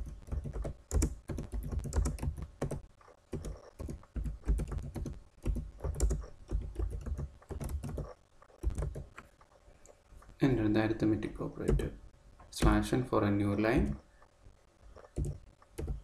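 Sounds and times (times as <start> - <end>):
typing on computer keyboard: 0.0 - 9.2, 11.6 - 11.9, 15.0 - 16.0.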